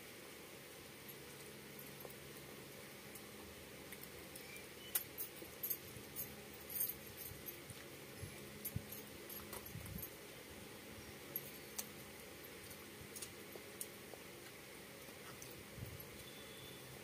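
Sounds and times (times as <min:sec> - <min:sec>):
chewing and lip smacks: 0:13.2 - 0:15.6.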